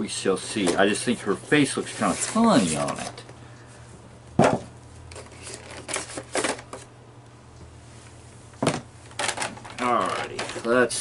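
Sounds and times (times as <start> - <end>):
plastic packaging clicks and crackles: 9.1 - 11.0.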